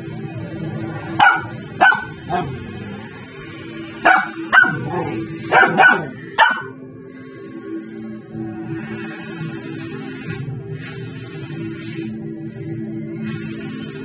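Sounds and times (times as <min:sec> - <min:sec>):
background music: 0:00.0 - 0:14.0
young dog barking: 0:01.2 - 0:02.5, 0:04.1 - 0:04.9, 0:05.5 - 0:06.7.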